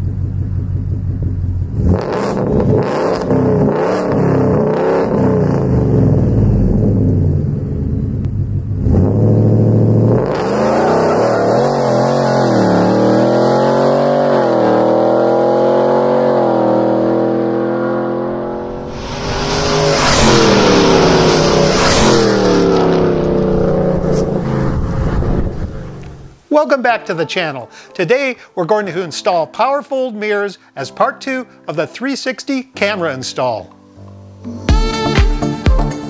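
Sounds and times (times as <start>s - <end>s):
engine heard from inside cab: 0.0s - 2.9s
truck engine accelerating: 0.0s - 26.3s.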